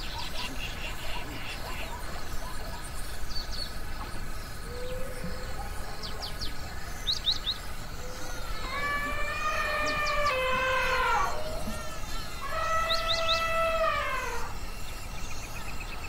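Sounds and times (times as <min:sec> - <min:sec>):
low background noise: 0:00.0 - 0:16.0
long held pitched call: 0:08.0 - 0:14.8.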